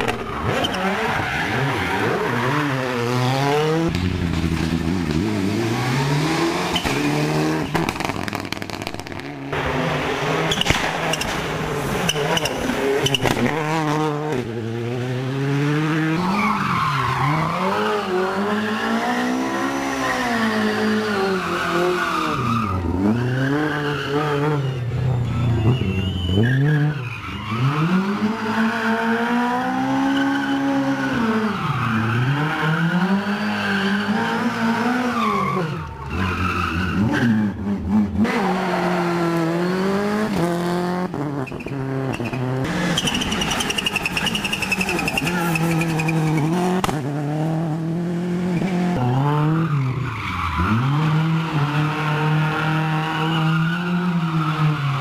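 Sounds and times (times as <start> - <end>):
tyres squealing and skidding: 0.0 - 3.9, 5.2 - 8.8, 9.9 - 14.0, 15.6 - 40.4, 41.3 - 47.0, 48.6 - 55.0
car engines revving hard: 0.0 - 55.0.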